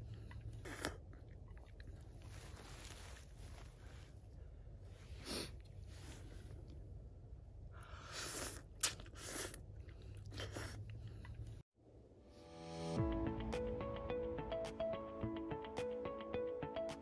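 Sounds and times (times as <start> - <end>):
person chewing noodles: 0.0 - 2.6, 7.8 - 11.6.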